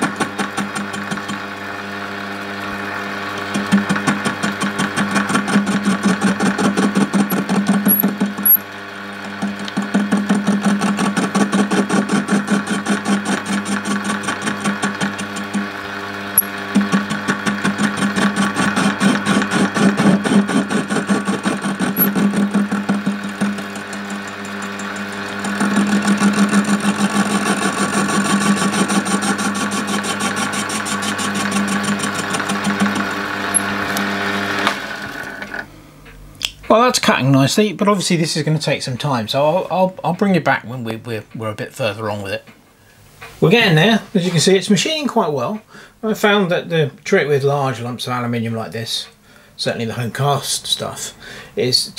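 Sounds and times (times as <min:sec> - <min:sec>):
lathe motor hum: 0:00.0 - 0:35.7
lathe cutting metal pulsing: 0:10.7 - 0:35.6.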